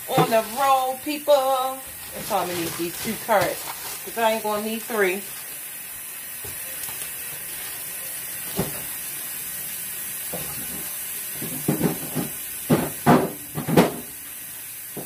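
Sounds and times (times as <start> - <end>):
faucet running into a plastic tub: 0.0 - 15.0
handling sounds: 1.9 - 4.2.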